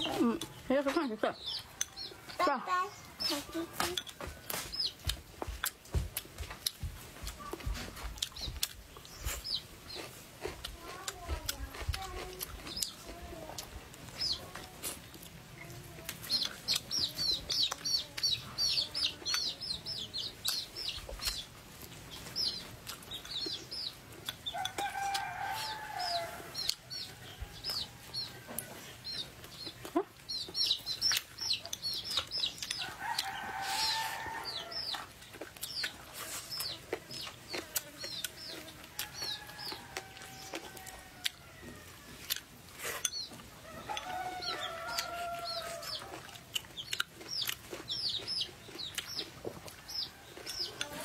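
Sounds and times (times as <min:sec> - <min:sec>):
chicks peeping: 0:00.0 - 0:51.0
adult chicken calling: 0:32.7 - 0:35.1.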